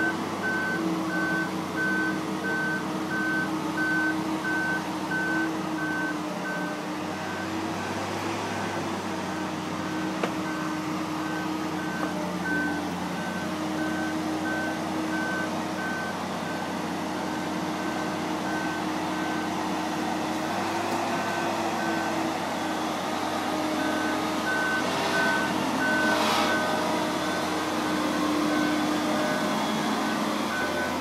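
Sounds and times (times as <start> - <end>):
engine running steadily: 0.0 - 31.0.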